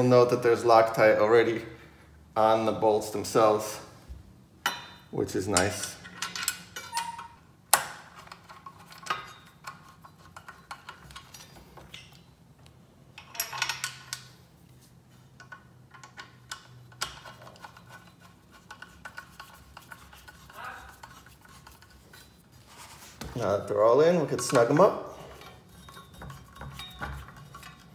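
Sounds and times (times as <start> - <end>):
metallic clicks and scrapes of bolts: 4.6 - 22.8, 24.1 - 27.9.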